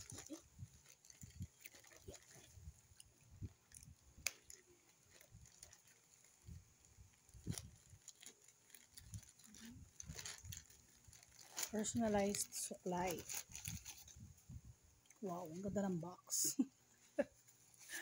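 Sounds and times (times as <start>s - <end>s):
plastic pouch crinkling and tearing: 0.0s - 2.6s, 3.6s - 6.6s, 7.2s - 14.2s.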